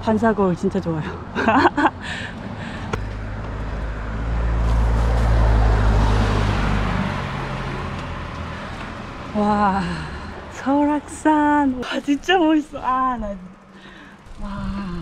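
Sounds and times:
car tyre noise: 0:02.8 - 0:09.2.

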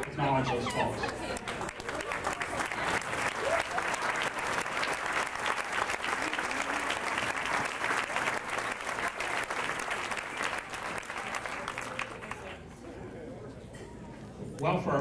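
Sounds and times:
crowd applauding: 0:00.0 - 0:12.6
hands clapping close by: 0:01.4 - 0:12.5.

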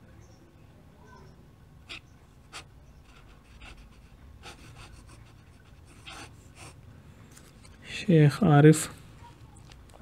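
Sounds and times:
fountain pen scratching on paper: 0:01.9 - 0:06.8.

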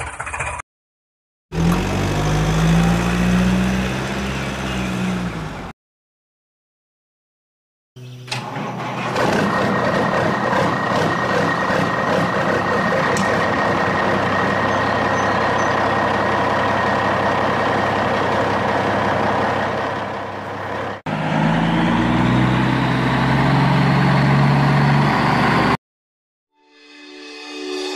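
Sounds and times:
truck engine running: 0:08.3 - 0:25.8
deep engine idling: 0:08.8 - 0:21.3.

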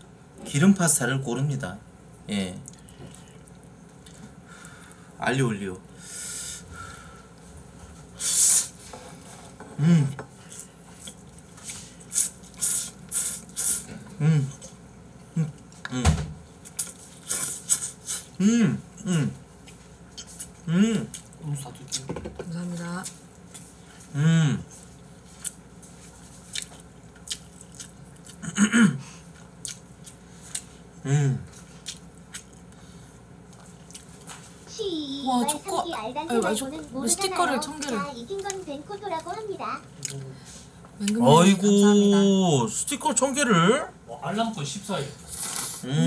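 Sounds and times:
person humming: 0:09.8 - 0:10.2, 0:14.1 - 0:14.7, 0:15.4 - 0:16.2, 0:18.4 - 0:19.4, 0:20.6 - 0:21.1, 0:24.1 - 0:24.7, 0:31.0 - 0:31.5, 0:45.8 - 0:46.0
loud slurp: 0:12.2 - 0:13.9, 0:45.3 - 0:46.0
wet mouth clicks and chewing: 0:26.5 - 0:28.4, 0:29.6 - 0:30.7.

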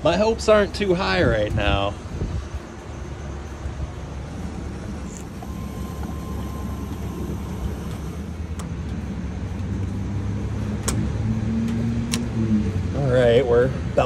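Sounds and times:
fuel rushing into tank: 0:04.2 - 0:08.6.

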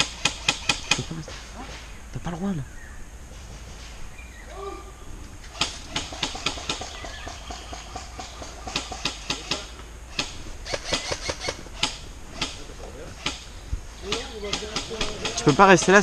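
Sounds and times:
airsoft gunfire: 0:05.6 - 0:12.6.

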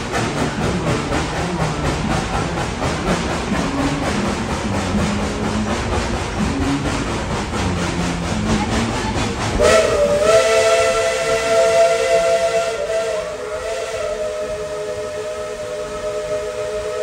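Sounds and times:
steam hiss: 0:00.0 - 0:17.0
train rumbling along track: 0:00.0 - 0:17.0
steam whistle chord: 0:09.6 - 0:17.0.

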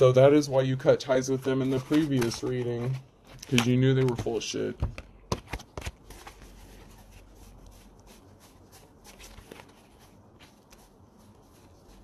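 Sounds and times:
low steady hum: 0:00.0 - 0:12.0
cards tapping and rustling: 0:01.4 - 0:06.9, 0:09.0 - 0:10.9.

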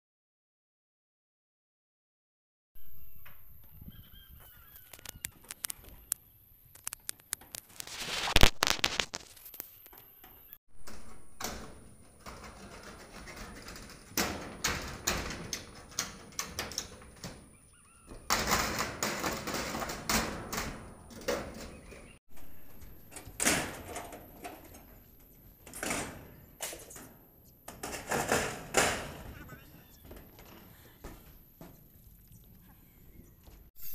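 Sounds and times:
metal roofing sheets banging: 0:10.2 - 0:31.7
metal sheets scraping and rattling: 0:10.8 - 0:29.4.

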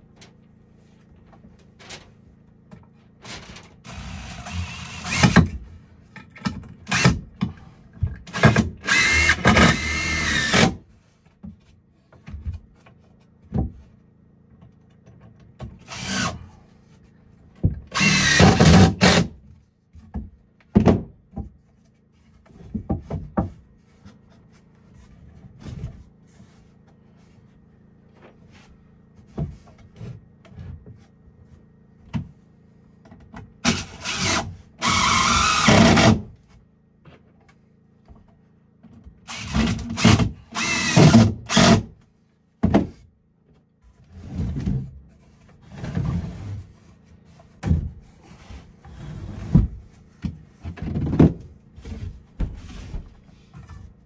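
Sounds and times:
knocks and clatter of wood and tools: 0:00.0 - 0:15.9, 0:17.0 - 0:41.8, 0:42.6 - 0:54.0
power drill running: 0:03.8 - 0:05.5, 0:08.3 - 0:10.8, 0:15.9 - 0:16.5, 0:17.9 - 0:19.3, 0:33.6 - 0:36.2, 0:39.3 - 0:41.9.

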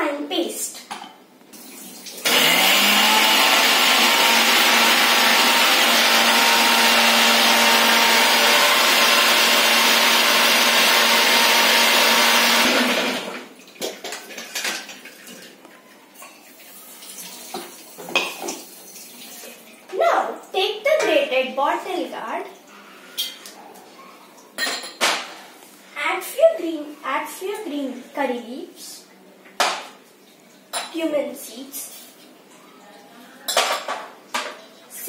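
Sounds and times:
mixer grinder running: 0:02.2 - 0:13.5.

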